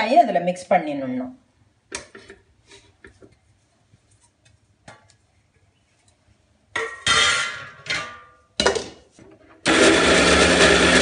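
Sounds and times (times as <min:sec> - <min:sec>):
metal jar lid clanking: 0:06.8 - 0:09.0.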